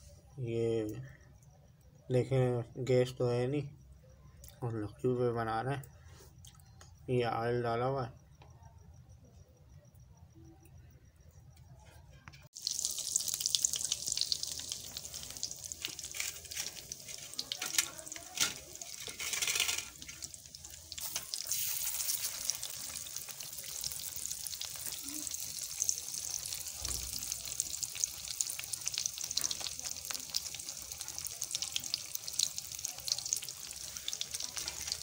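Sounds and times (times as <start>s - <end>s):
fish sizzling in hot oil: 12.5s - 35.0s.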